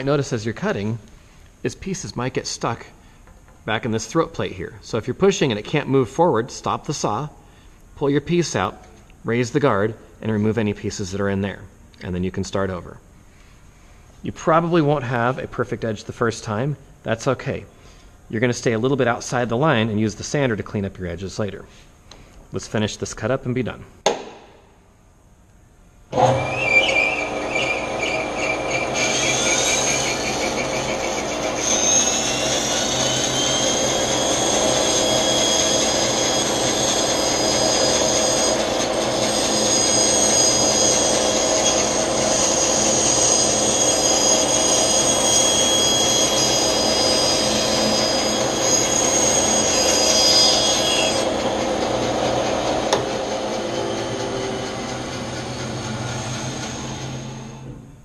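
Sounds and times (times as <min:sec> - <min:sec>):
saw blade cutting wood whine: 0:26.1 - 0:57.9
bandsaw motor hum: 0:26.1 - 0:58.0.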